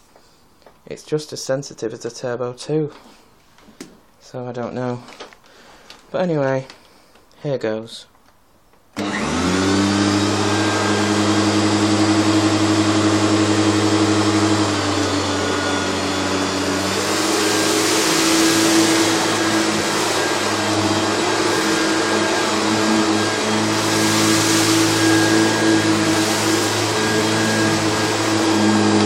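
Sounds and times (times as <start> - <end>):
vacuum cleaner motor humming: 9.0 - 29.0
vacuum sucking up sawdust: 9.0 - 29.0.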